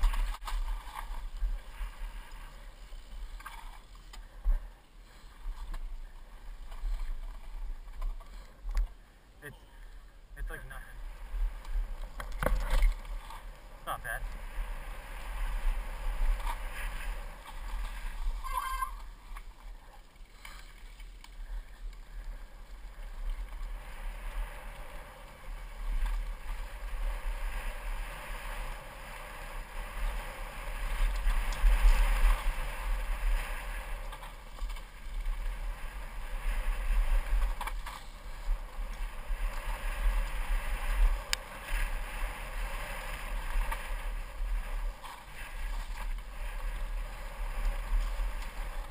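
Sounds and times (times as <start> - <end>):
bike tyres rumbling over dirt: 0.0 - 9.1, 10.7 - 48.9
bike clicks and knocks from bumps: 11.6 - 13.5.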